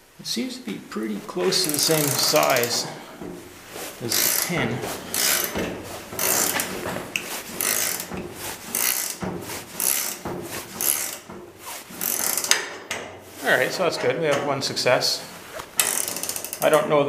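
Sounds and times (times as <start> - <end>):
wrench turning a screw: 1.4 - 3.3, 4.0 - 13.1, 15.8 - 16.8.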